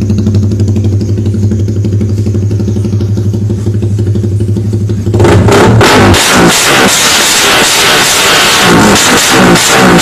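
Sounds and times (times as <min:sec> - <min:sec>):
motorcycle engine idling: 0:00.0 - 0:05.6.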